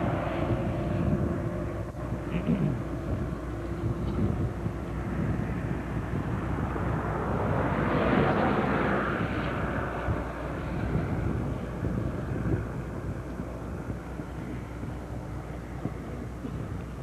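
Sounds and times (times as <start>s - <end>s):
aircraft passing overhead: 0.0s - 17.0s
wind rumble on microphone: 0.0s - 17.0s.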